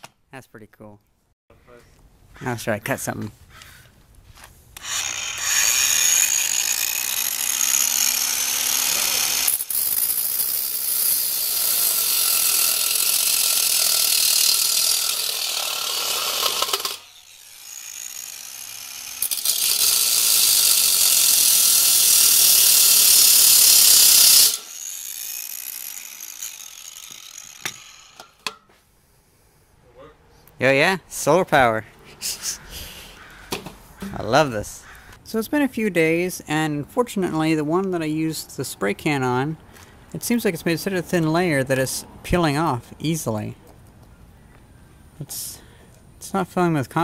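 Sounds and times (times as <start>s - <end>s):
grinder disc winding down: 4.8s - 28.3s
angle grinder cutting steel: 4.8s - 28.6s.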